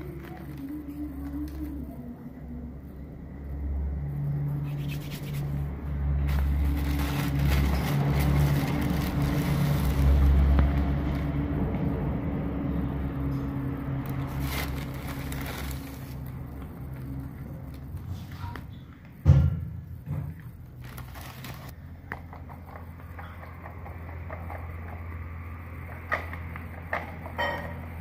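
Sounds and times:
grains scraping and rattling: 0:06.2 - 0:11.3, 0:14.0 - 0:16.4.

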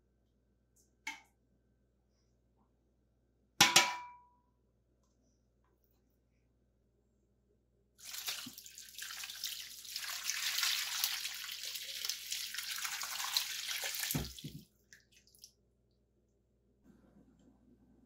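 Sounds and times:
liquid splashing into a pan: 0:08.0 - 0:15.6.

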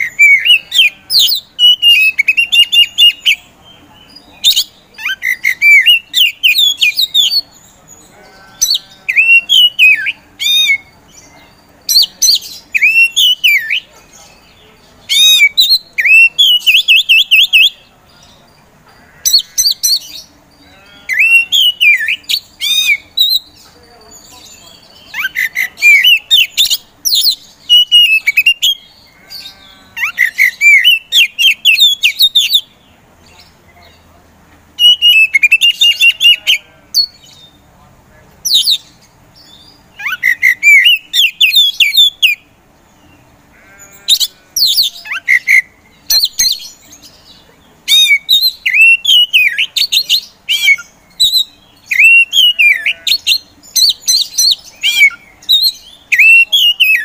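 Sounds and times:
bird singing whistles and trills: 0:00.0 - 0:03.5, 0:25.1 - 0:28.8, 0:34.8 - 0:36.4, 0:47.9 - 0:57.0.

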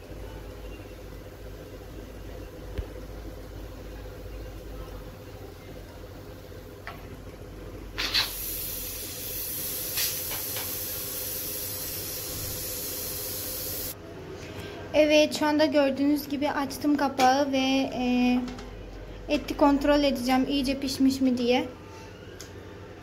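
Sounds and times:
pressure cooker steam hissing: 0:08.0 - 0:14.0.

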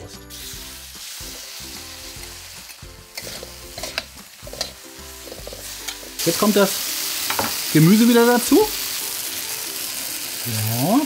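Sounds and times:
chicken sizzling in a wok: 0:00.0 - 0:11.0
metal ladle scraping a wok: 0:03.1 - 0:06.0.

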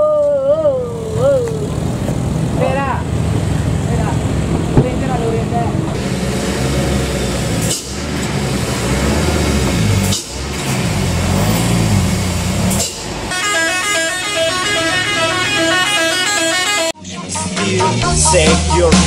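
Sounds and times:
truck diesel engine under load: 0:00.0 - 0:17.0
multi-tone vehicle horn: 0:13.3 - 0:19.0.

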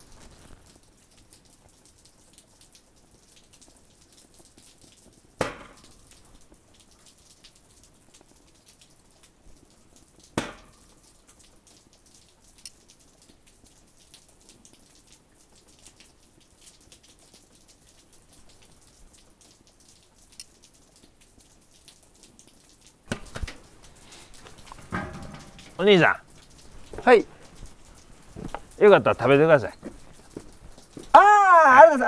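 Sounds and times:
sharp knock: 0:23.1 - 0:23.6.

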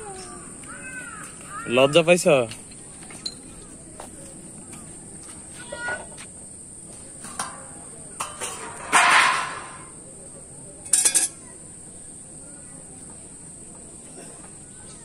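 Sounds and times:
plate and knife clattering on concrete: 0:08.2 - 0:09.9, 0:10.9 - 0:11.4.

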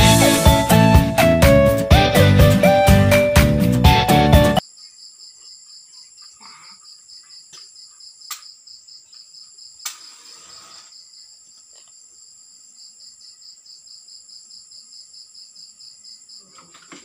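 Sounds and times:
crickets chirping: 0:04.6 - 0:17.0.

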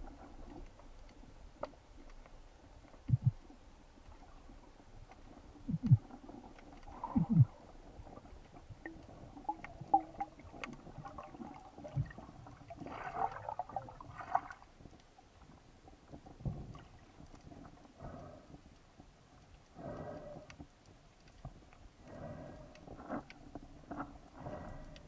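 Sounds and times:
muffled underwater thuds: 0:03.1 - 0:03.4.

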